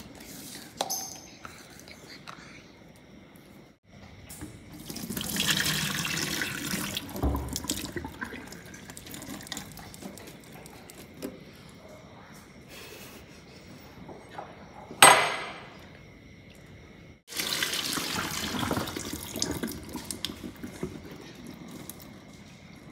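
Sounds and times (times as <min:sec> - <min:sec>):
water splashing into steel sink: 0:04.3 - 0:11.3, 0:17.3 - 0:22.1.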